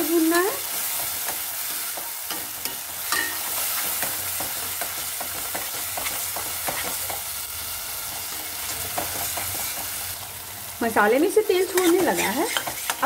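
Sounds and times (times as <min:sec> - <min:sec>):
paste sizzling in oil: 0:00.0 - 0:13.0
metal spatula scraping pan: 0:11.6 - 0:13.0.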